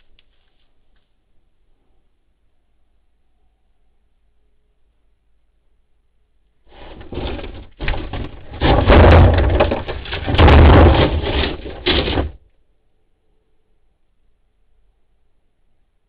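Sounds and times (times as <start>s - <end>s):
trash can clattering and banging: 6.7s - 12.4s.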